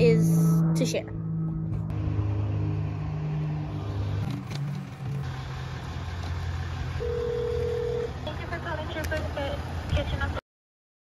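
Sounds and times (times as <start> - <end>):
vehicle engine idling: 3.6 - 10.4
phone ringing tone: 7.0 - 8.2.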